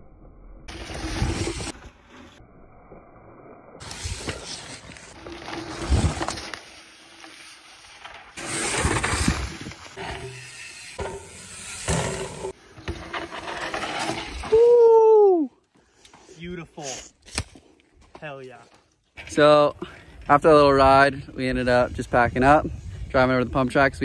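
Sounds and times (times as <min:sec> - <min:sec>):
bike tyres skidding through dirt: 0:00.7 - 0:02.4, 0:03.8 - 0:14.8.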